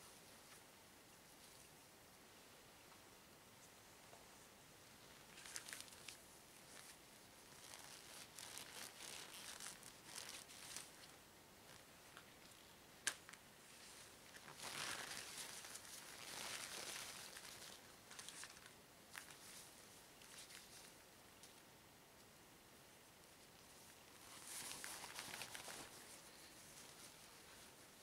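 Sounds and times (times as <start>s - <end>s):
rubber gloves rustling: 5.0s - 21.0s, 23.4s - 28.0s.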